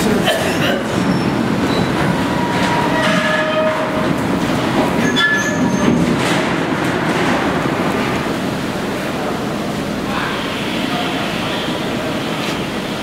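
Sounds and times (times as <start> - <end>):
train rolling on track: 0.0 - 13.0
high metallic squeals: 5.0 - 5.9.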